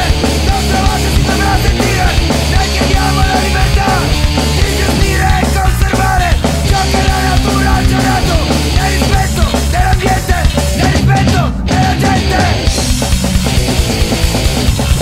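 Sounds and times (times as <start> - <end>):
punk rock band playing live: 0.0 - 15.0.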